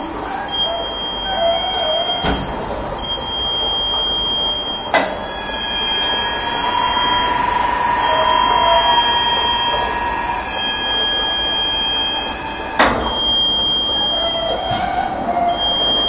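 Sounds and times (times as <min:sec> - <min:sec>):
cleaning machine loud hiss: 0:00.0 - 0:14.5
thin high whines: 0:00.0 - 0:16.0.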